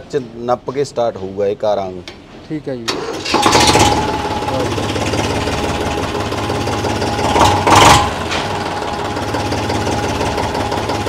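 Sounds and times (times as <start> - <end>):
tractor diesel engine idling: 2.9 - 11.0.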